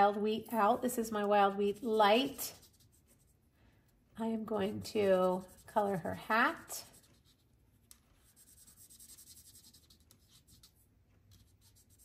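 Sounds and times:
marker scratching on cardstock: 1.7s - 3.4s, 4.6s - 7.5s, 8.2s - 12.0s.

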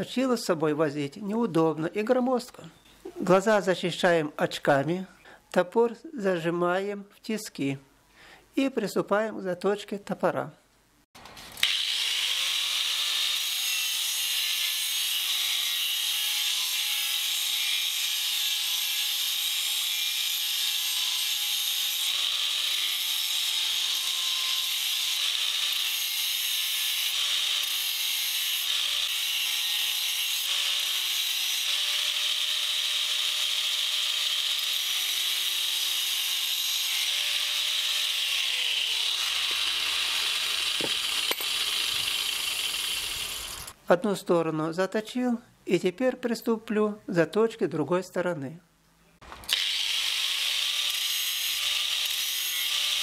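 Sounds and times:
angle grinder grinding metal: 11.5s - 43.8s, 49.5s - 53.0s
grinder motor whine: 38.6s - 43.8s.

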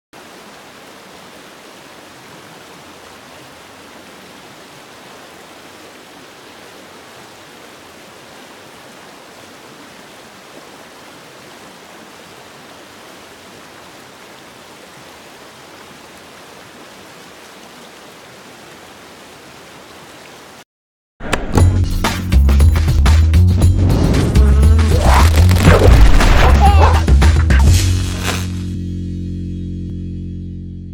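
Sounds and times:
creek rushing over rocks: 0.2s - 20.6s, 24.0s - 27.1s.

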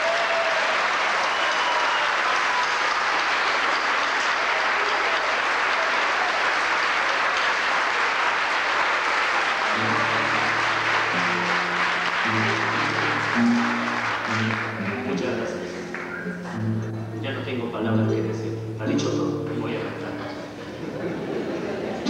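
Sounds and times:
audience applauding: 0.0s - 16.9s
acoustic guitars low notes: 9.6s - 22.0s.

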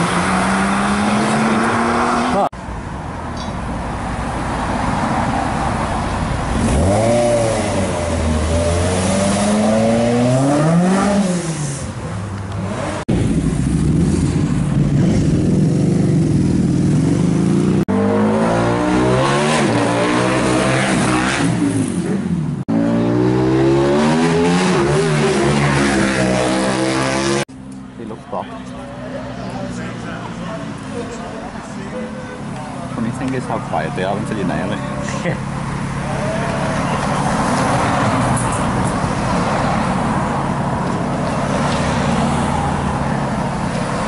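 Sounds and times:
car engine revving: 0.0s - 2.5s, 6.3s - 11.8s, 12.5s - 27.5s.

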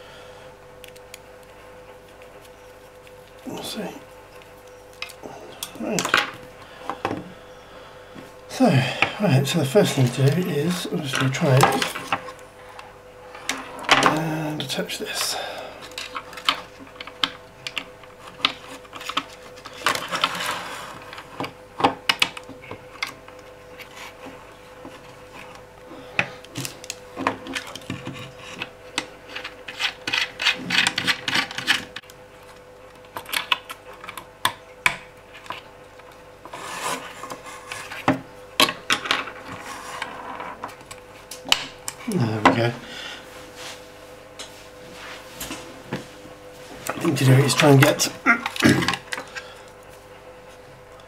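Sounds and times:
faint steady hum: 0.0s - 51.0s
rubbing and scraping: 27.4s - 32.0s, 36.4s - 38.1s, 39.4s - 40.7s.

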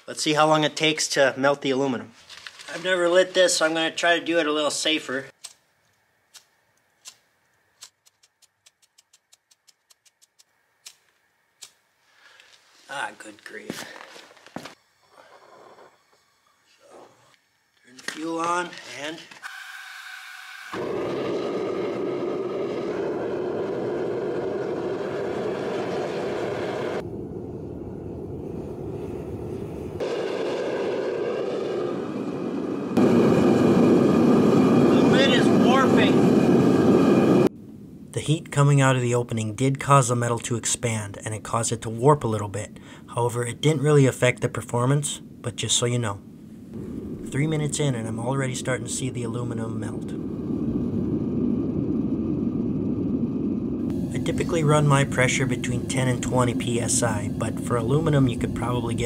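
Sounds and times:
propane burner rushing: 14.7s - 18.8s, 20.7s - 27.7s, 28.4s - 37.5s, 46.7s - 59.0s.

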